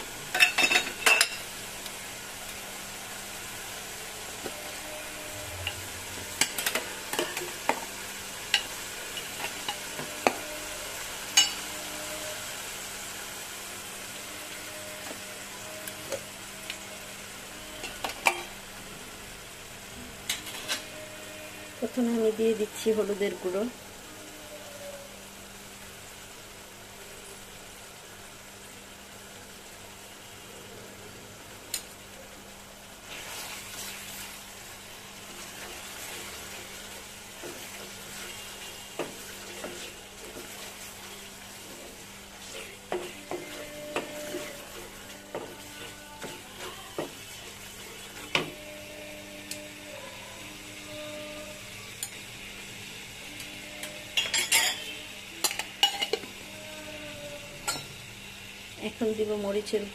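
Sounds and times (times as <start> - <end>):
paste sizzling in oil: 0.0 - 24.0, 31.7 - 59.9
spatula scraping pan: 20.3 - 21.8, 35.4 - 49.7
spatula knocking and scraping pan: 42.6 - 47.4.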